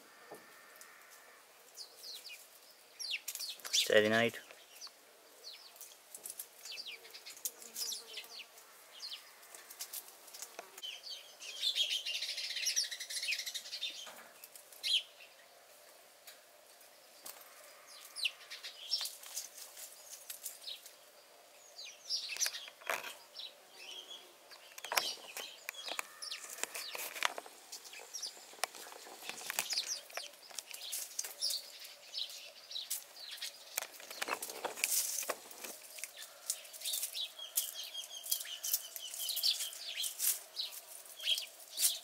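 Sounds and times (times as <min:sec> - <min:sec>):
small birds chirping: 0:00.0 - 0:15.7, 0:16.3 - 0:42.0
kittens scampering over dry leaves: 0:05.6 - 0:08.7, 0:09.3 - 0:10.8, 0:13.4 - 0:15.0, 0:18.9 - 0:21.0, 0:24.8 - 0:42.0.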